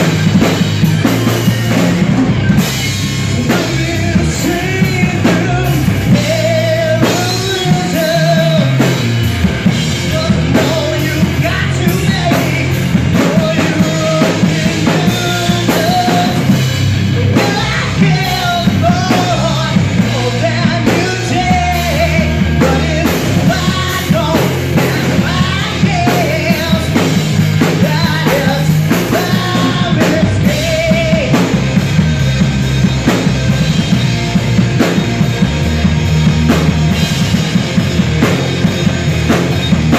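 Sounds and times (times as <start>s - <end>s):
drum kit: 0.0s - 39.9s
electric guitars: 0.0s - 39.9s
man singing: 3.2s - 32.0s.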